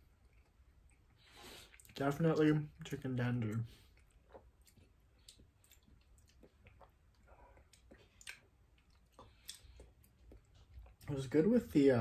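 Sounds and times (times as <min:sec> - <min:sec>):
person chewing mouth clicks: 0:03.4 - 0:11.1.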